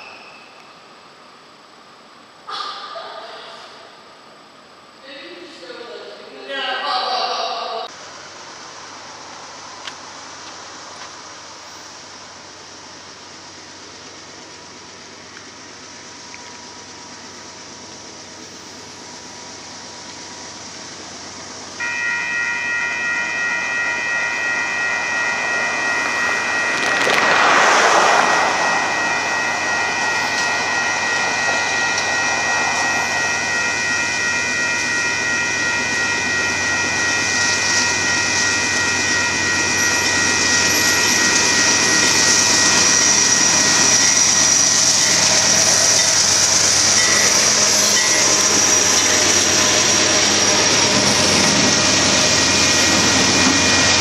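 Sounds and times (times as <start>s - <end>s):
freight train running noise: 7.1s - 54.0s
railroad crossing warning bell: 18.4s - 54.0s
high steady tone: 21.2s - 44.2s
rush of noise: 21.8s - 54.0s.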